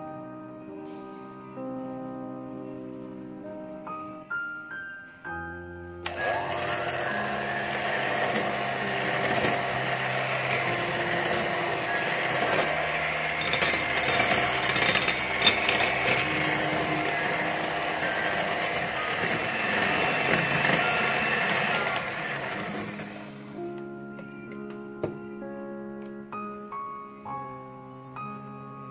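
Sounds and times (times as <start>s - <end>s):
soft piano music: 0.0s - 28.9s
electric hand mixer whirring: 6.0s - 23.8s
beaters clicking against bowl: 13.3s - 16.5s.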